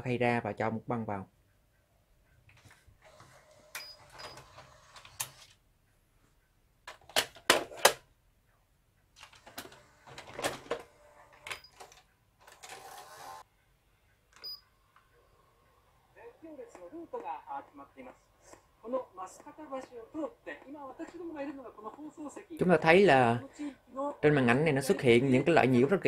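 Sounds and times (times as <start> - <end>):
motorised cassette drawer running: 3.0 - 5.6, 9.2 - 13.4.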